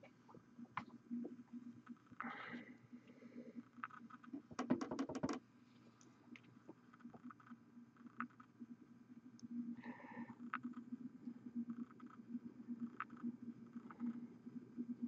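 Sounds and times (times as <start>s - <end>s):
faint ticks and rustles: 0.0s - 15.0s
steady low hum: 5.4s - 15.0s.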